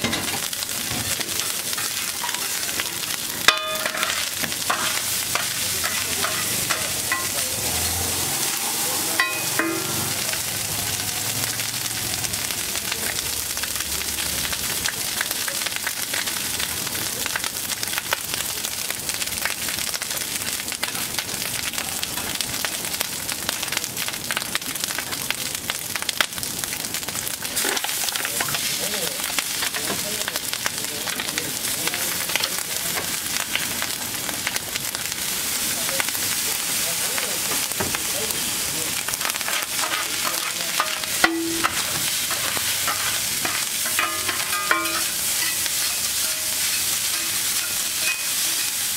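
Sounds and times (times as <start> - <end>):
food sizzling on a griddle: 0.0 - 48.9
metal spatula scraping and tapping: 3.5 - 7.4, 39.4 - 48.8.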